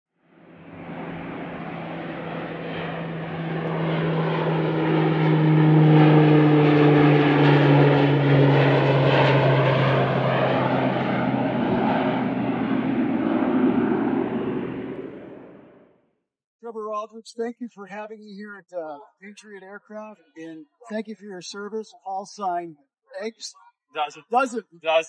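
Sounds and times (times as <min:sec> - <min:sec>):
propeller airplane flying past: 0:00.2 - 0:16.0.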